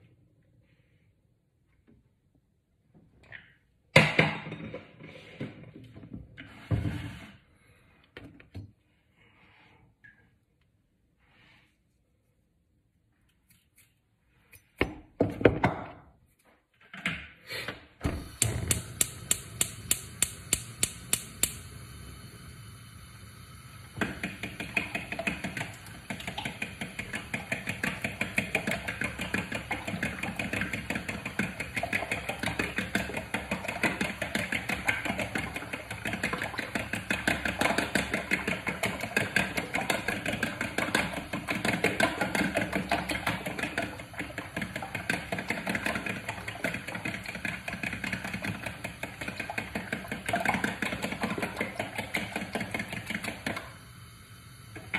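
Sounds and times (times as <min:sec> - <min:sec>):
gas burner hissing: 0:18.0 - 0:45.5, 0:46.4 - 0:54.9
gas hob igniter clicking: 0:18.2 - 0:21.9
fork beating eggs in a bowl: 0:24.0 - 0:53.6.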